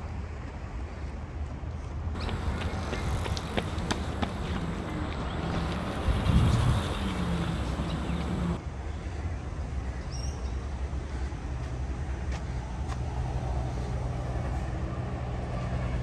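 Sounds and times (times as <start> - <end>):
vehicle engine hum: 0.1 - 8.6.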